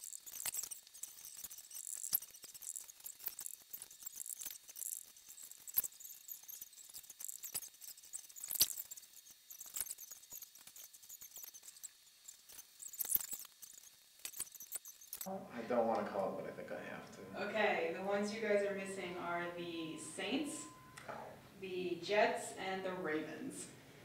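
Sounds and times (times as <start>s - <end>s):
marker squeaking on whiteboard: 0.0s - 15.3s.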